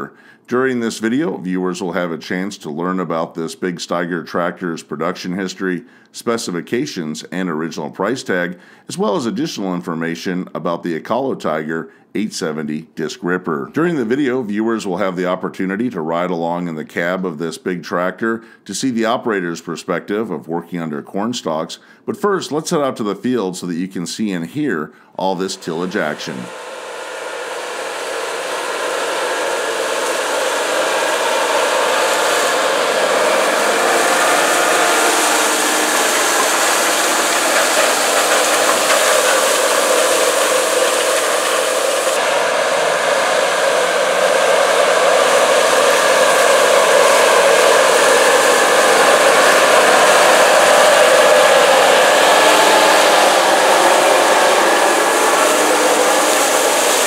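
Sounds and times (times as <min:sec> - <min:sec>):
diesel tractor engine under load: 0:25.6 - 0:57.0
tillage tool in soil: 0:29.6 - 0:42.2, 0:52.4 - 0:57.0.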